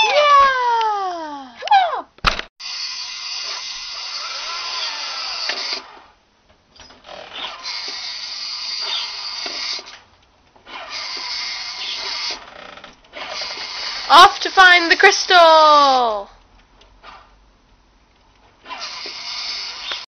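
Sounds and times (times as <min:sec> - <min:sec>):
toy car electric motor whirring: 0:02.6 - 0:06.1, 0:07.1 - 0:10.0, 0:10.6 - 0:15.1, 0:18.6 - 0:20.0.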